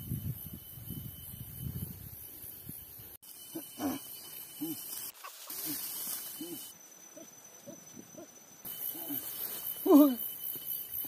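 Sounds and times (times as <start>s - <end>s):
animal hooting calls: 3.4s - 10.2s.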